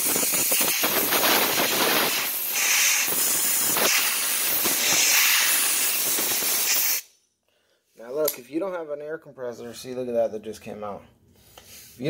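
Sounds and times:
air blow gun hissing: 0:00.0 - 0:07.1.

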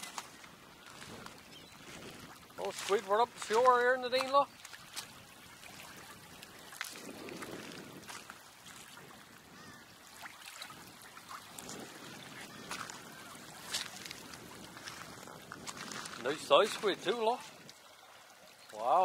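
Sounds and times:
small waves washing on shore: 0:00.0 - 0:19.0.

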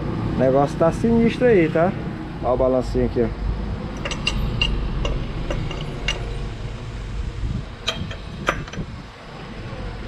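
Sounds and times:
steady low rumble: 0:00.0 - 0:10.0
light metallic clicks of gears: 0:03.9 - 0:06.4, 0:07.8 - 0:08.9.

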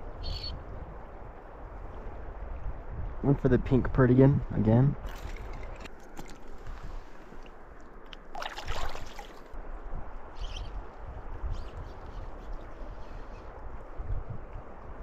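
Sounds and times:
water splashing: 0:05.0 - 0:09.6
river flowing: 0:05.1 - 0:09.6.

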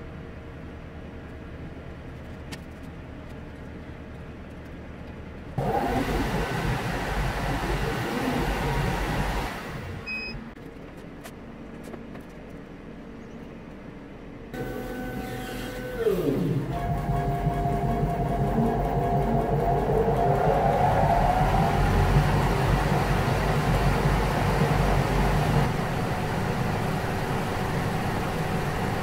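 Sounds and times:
machine hum: 0:05.4 - 0:10.6, 0:12.5 - 0:29.0
loud rush of noise: 0:05.6 - 0:10.0, 0:16.5 - 0:29.0
steady whine: 0:05.6 - 0:10.6, 0:14.3 - 0:29.0.

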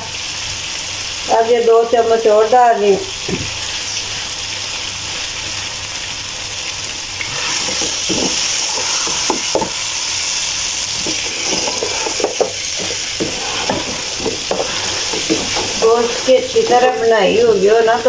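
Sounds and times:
meat sizzling in a pot: 0:00.0 - 0:18.0
wooden spoon scraping and knocking pot: 0:07.4 - 0:09.8, 0:11.0 - 0:17.6.

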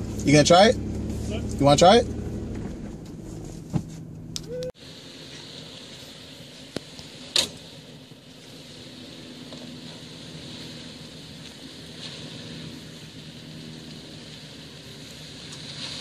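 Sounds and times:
engine running low: 0:00.0 - 0:16.0
thump: 0:02.5 - 0:04.0.

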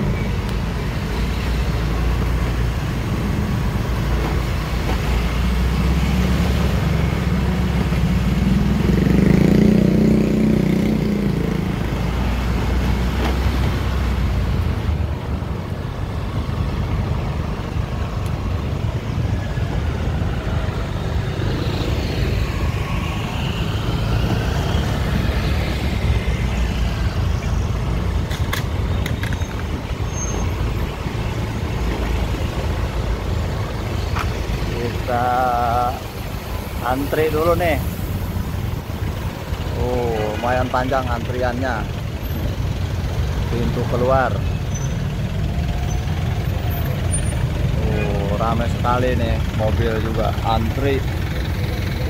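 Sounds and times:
car engines: 0:00.0 - 0:52.0
loud engine rumble: 0:00.0 - 0:52.0
motorcycle engine: 0:02.9 - 0:16.3.

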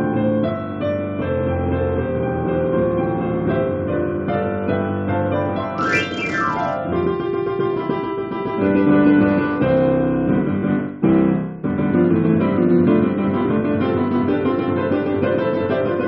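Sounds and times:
digital piano playing: 0:05.8 - 0:07.2.

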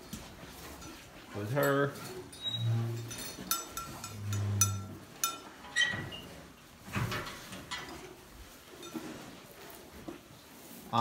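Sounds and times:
sharp metallic clinks: 0:00.6 - 0:05.9.

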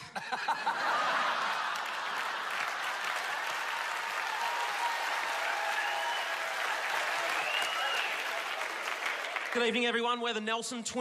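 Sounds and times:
large audience applauding: 0:00.5 - 0:10.1.

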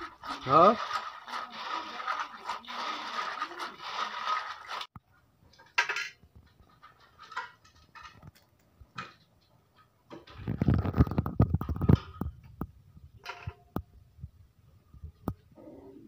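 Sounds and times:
snails rattling in water: 0:00.0 - 0:04.9.

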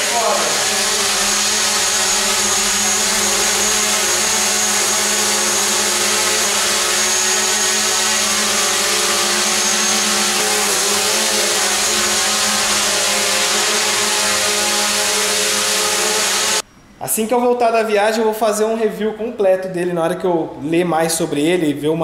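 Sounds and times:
drone propellers whining: 0:00.0 - 0:16.6.

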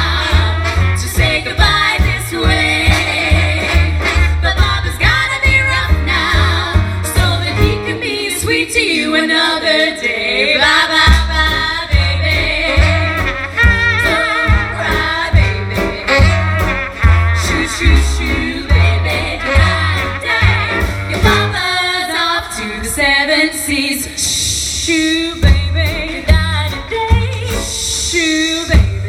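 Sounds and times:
swing band music: 0:00.0 - 0:09.9, 0:10.5 - 0:29.0
women singing close harmony: 0:00.0 - 0:13.2, 0:14.0 - 0:16.5, 0:17.4 - 0:24.2.

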